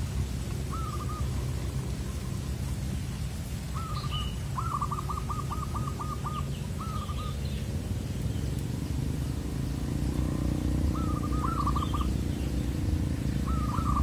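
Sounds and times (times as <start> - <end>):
dove cooing: 0.0 - 3.0, 3.6 - 7.4, 9.6 - 14.0
steady low rumble: 0.0 - 14.0.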